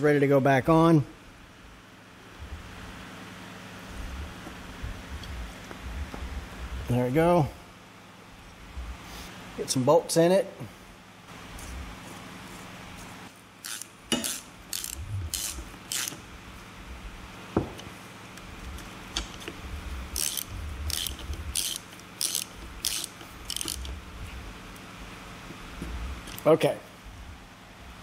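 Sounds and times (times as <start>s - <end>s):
hand ratchet clicking: 13.6s - 16.2s, 19.1s - 24.0s.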